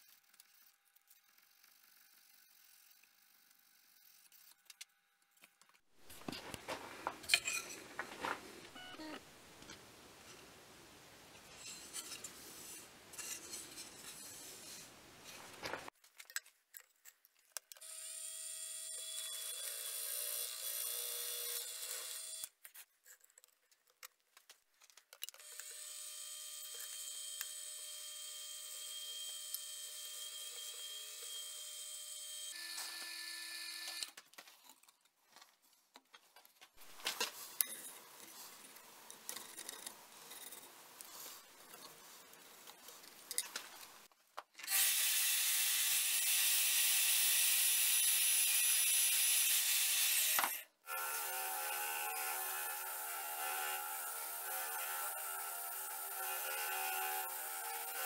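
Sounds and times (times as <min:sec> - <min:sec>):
drill press boring into wood: 0:44.7 - 0:58.0.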